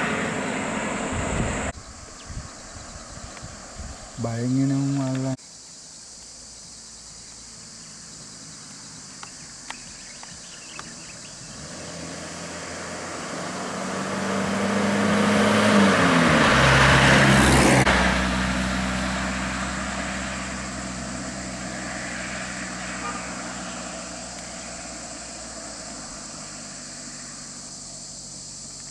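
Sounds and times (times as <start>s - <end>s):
truck driving past: 0.0s - 1.8s, 10.5s - 28.6s.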